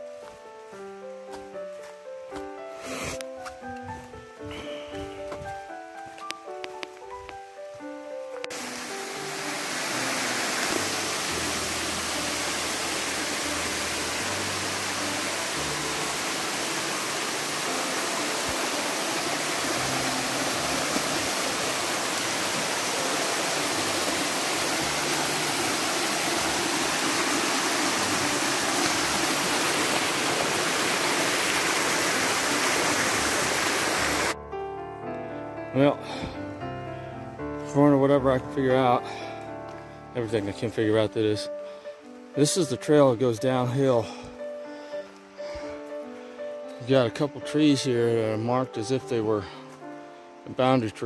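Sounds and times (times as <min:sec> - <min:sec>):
water cascading over rock: 0:08.5 - 0:34.4.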